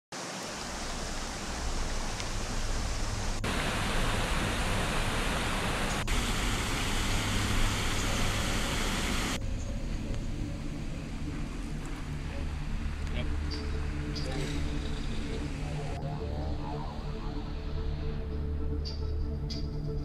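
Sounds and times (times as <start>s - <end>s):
river water rushing over weir: 0.2s - 9.4s.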